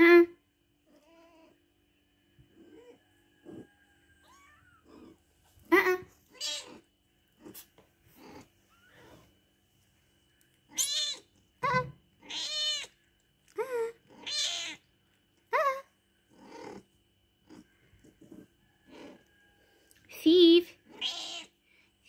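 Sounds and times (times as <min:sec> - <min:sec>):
cat meowing: 0:04.2 - 0:05.1, 0:06.3 - 0:06.8, 0:10.7 - 0:12.9, 0:14.1 - 0:14.8, 0:20.9 - 0:21.5.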